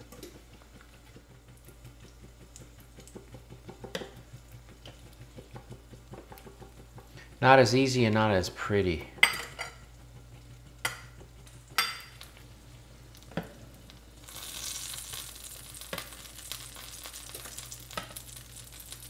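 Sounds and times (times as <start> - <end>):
frying pan sizzling: 0.0 - 19.0
low steady hum: 0.0 - 19.0.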